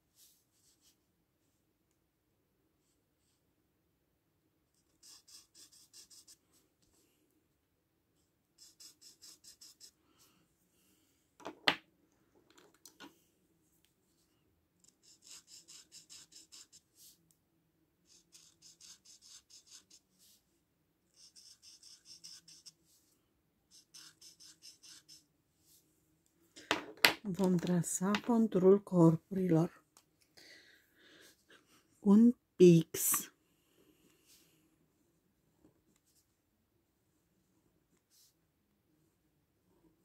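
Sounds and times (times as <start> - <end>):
marker scratching on paper: 4.8 - 6.4, 8.6 - 10.0, 14.8 - 17.2, 18.0 - 20.4, 21.1 - 23.0, 23.7 - 25.3.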